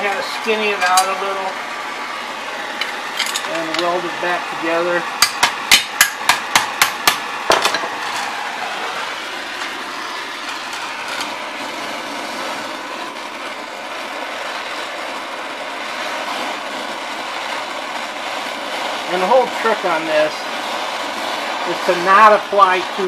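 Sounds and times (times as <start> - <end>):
torch flame hissing: 0.0 - 23.0.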